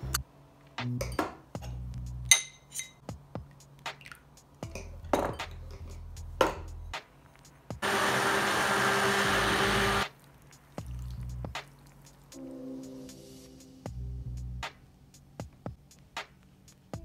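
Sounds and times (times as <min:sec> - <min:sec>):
electric stick blender whirring: 0:07.8 - 0:10.0.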